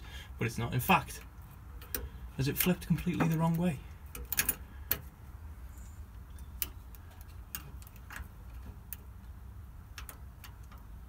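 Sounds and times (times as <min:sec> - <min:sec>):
steady low rumble: 0:00.0 - 0:11.0
throttle linkage clicks and taps: 0:01.8 - 0:05.1, 0:09.8 - 0:11.0.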